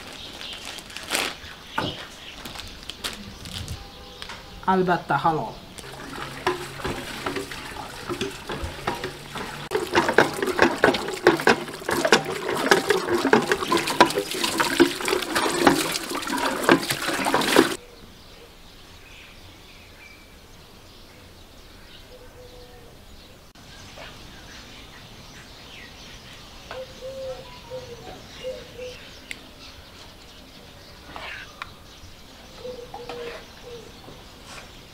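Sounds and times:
hose water splashing: 5.8 - 17.8
faint bird calls: 32.5 - 34.8.

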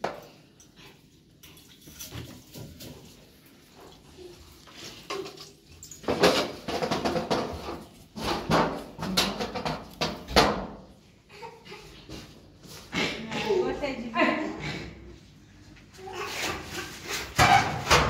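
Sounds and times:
brush scrubbing a ceramic washbasin: 0.8 - 5.8, 16.0 - 17.4.

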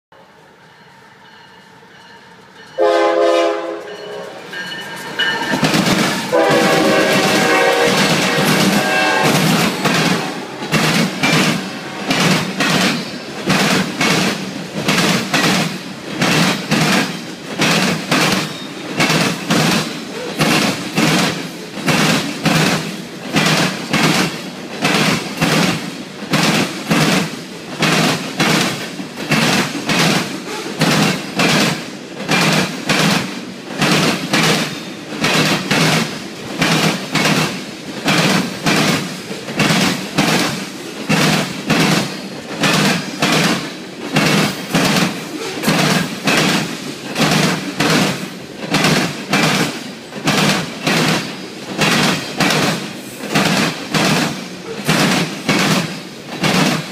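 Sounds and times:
locomotive air horn blasts: 2.8 - 4.5, 6.2 - 10.7, 11.6 - 12.3
train wheels clicking over rail joints: 3.6 - 56.9.

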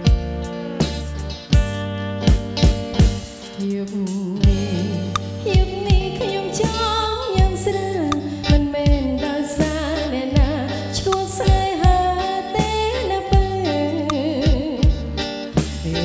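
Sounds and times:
electric bass: 0.0 - 16.0
woman singing into microphone: 3.5 - 16.0.

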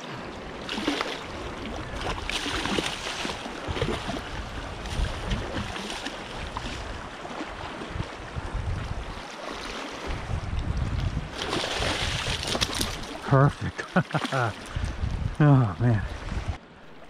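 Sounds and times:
water lapping and sloshing: 0.0 - 17.0
fish splashing: 0.6 - 4.3, 11.4 - 13.2
wind buffeting microphone: 1.2 - 9.2, 10.0 - 13.6, 14.5 - 17.0.

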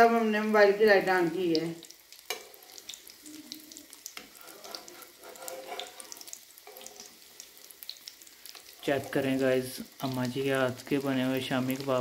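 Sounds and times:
patties sizzling in hot oil: 0.0 - 12.0
metal spatula scraping pan: 2.3 - 2.8, 4.2 - 7.8, 8.6 - 9.4.

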